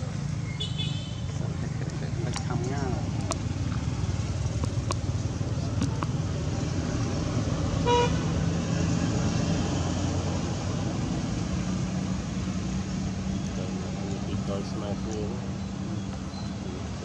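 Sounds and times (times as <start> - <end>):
vehicle engine rumble: 0.0 - 17.0
car horn toot: 0.6 - 1.2, 7.8 - 8.3.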